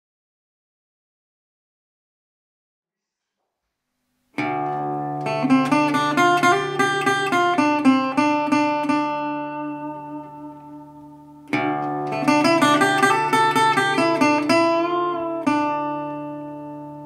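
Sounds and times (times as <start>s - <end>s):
resonator guitar low note: 4.4s - 17.0s
resonator guitar picked notes: 4.4s - 17.0s.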